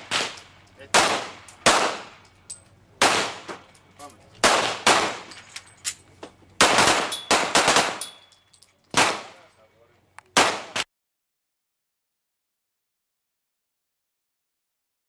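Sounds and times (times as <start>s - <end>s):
pistol shots echoing: 0.0s - 2.2s, 3.0s - 3.7s, 4.4s - 5.3s, 6.6s - 8.2s, 8.9s - 9.5s, 10.4s - 10.8s.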